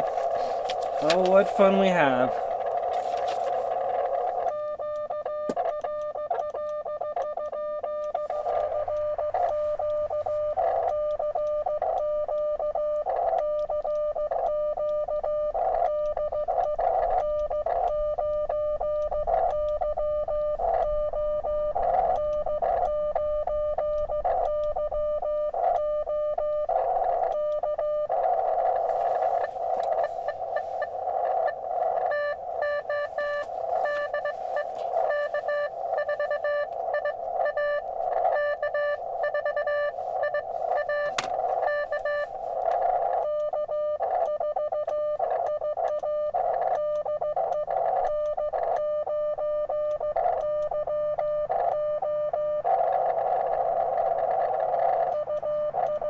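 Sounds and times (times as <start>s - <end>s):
radio band hiss: 0.0s - 4.5s, 8.2s - 10.9s, 28.2s - 43.2s
morse code tones: 0.0s - 56.0s.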